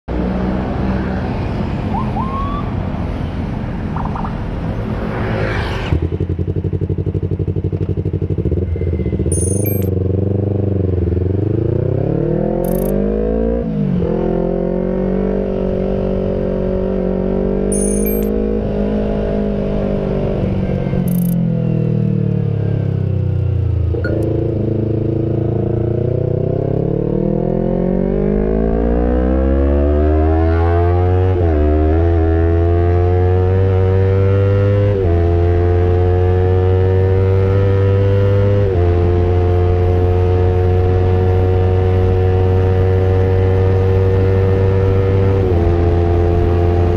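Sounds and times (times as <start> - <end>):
motorcycle engine revving: 6.0 - 21.4.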